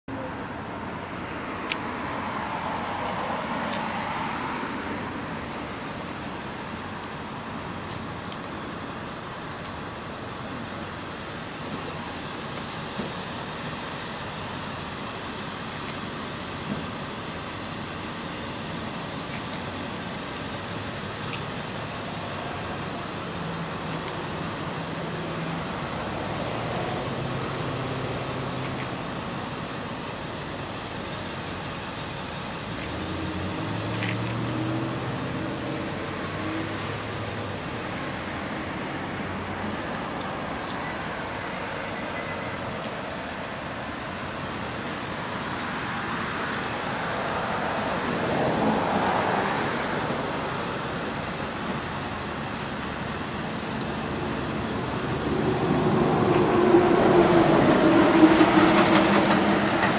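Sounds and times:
highway traffic hum: 0:00.0 - 0:59.9
vehicles passing: 0:00.0 - 0:59.9
low engine drone: 0:46.9 - 0:59.9.

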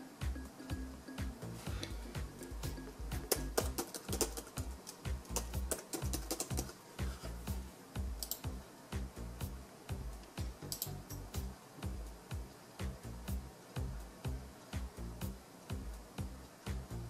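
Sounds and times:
background music with steady beat: 0:00.0 - 0:17.0
computer keyboard keys clacking: 0:03.2 - 0:06.8, 0:08.2 - 0:08.5.

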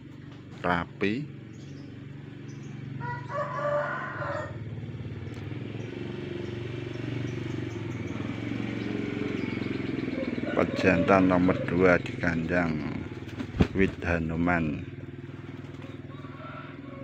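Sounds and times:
engine humming: 0:00.0 - 0:17.0
rooster crowing: 0:03.0 - 0:04.6, 0:10.2 - 0:11.7, 0:16.0 - 0:17.0.

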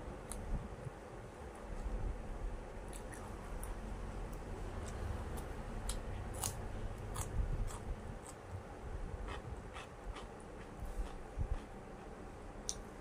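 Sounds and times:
person chewing cucumber: 0:02.9 - 0:08.6, 0:09.2 - 0:12.8.

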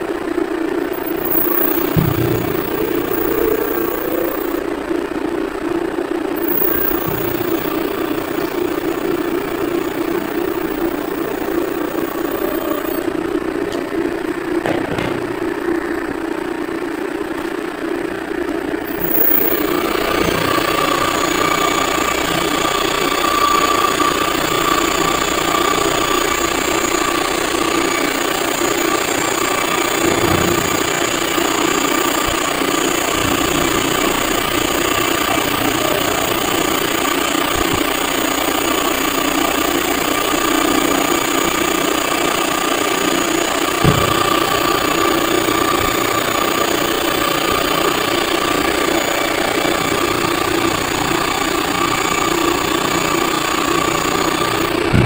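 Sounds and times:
electric motor whirring hum: 0:18.8 - 0:55.0.

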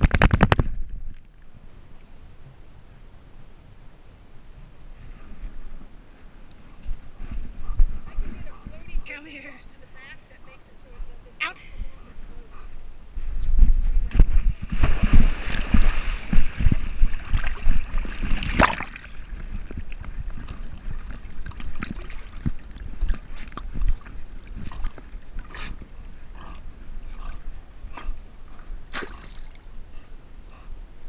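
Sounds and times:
water splashing and sloshing: 0:14.0 - 0:26.4, 0:28.1 - 0:29.9.

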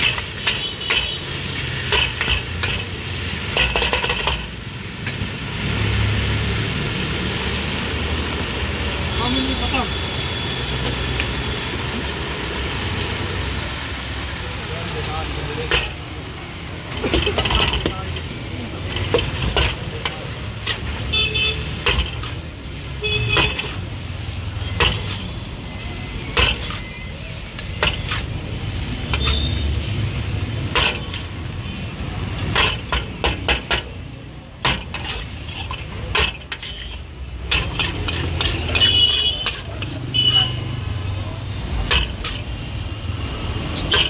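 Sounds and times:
metal spatula clanking on wok: 0:00.0 - 0:05.2, 0:21.7 - 0:22.4, 0:26.4 - 0:26.8, 0:32.4 - 0:40.0, 0:41.8 - 0:42.5
light sizzling: 0:00.0 - 0:44.0.

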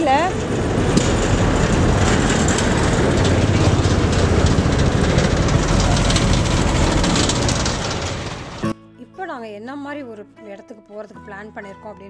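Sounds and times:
car road and engine rumble: 0:00.0 - 0:08.6
heavy lorries driving past: 0:00.0 - 0:08.8.

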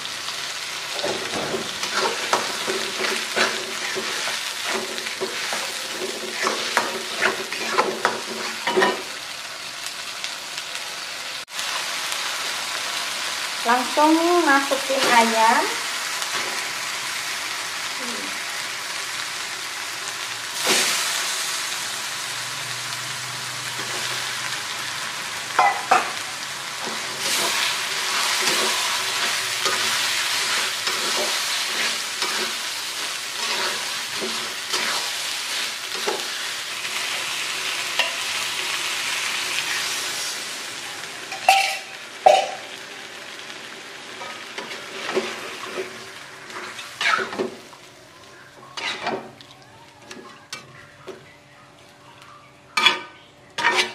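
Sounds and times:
chicken sizzling in a wok: 0:00.0 - 0:51.0, 0:51.7 - 0:53.9
metal spatula scraping a wok: 0:01.2 - 0:09.0, 0:26.9 - 0:36.4, 0:46.5 - 0:47.4, 0:48.7 - 0:49.2, 0:53.6 - 0:53.9.

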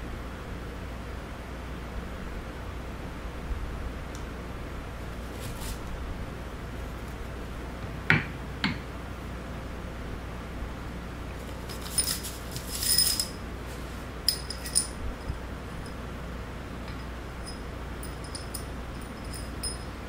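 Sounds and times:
steel bolts clinking: 0:11.7 - 0:13.4, 0:14.3 - 0:16.0, 0:16.8 - 0:20.0.

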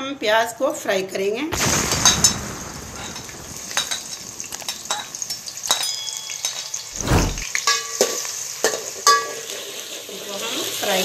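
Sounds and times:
thump: 0:07.0 - 0:07.4
onions sizzling in hot oil: 0:08.1 - 0:11.0.

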